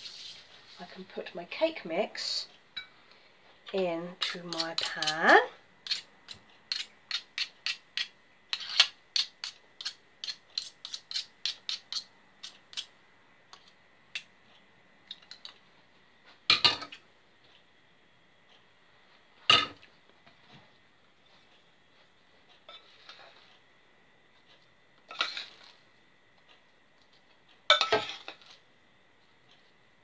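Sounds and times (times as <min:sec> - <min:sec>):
fork scraping glass bowl: 0:06.7 - 0:12.9.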